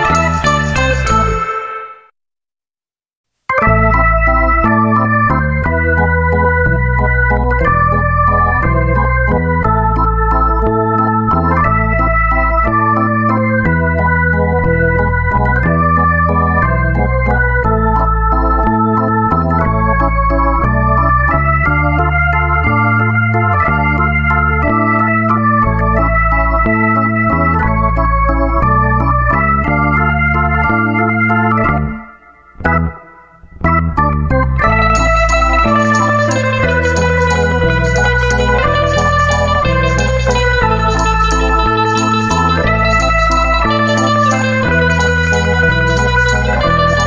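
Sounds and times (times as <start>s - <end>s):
stepping bass line: 0.0s - 1.5s, 3.5s - 32.0s, 32.6s - 47.0s
organ-like keyboard chords: 0.0s - 2.1s, 3.5s - 47.0s
steady beat: 34.6s - 47.0s.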